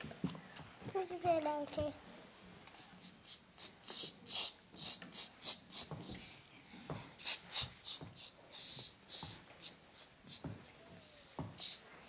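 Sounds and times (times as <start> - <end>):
children whispering: 2.7 - 12.0.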